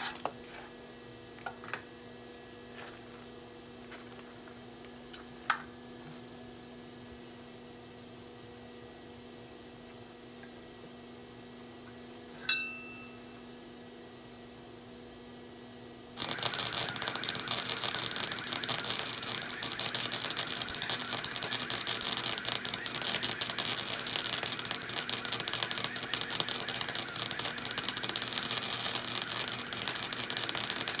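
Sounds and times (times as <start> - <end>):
welder arc crackling: 16.2 - 31.0.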